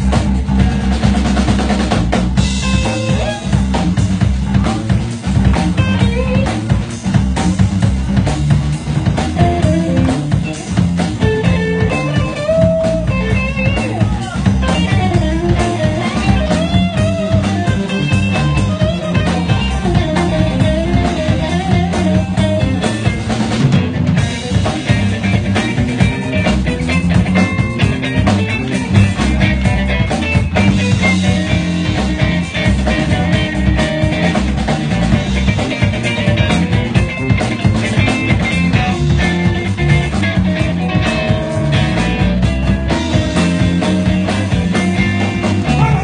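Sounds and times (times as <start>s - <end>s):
drum kit: 0.0s - 46.0s
electric bass: 0.0s - 46.0s
electric guitar lead: 0.0s - 46.0s.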